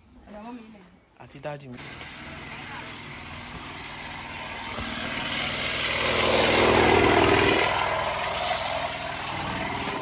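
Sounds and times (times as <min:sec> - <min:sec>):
motorcycle passing by: 0:01.8 - 0:10.0.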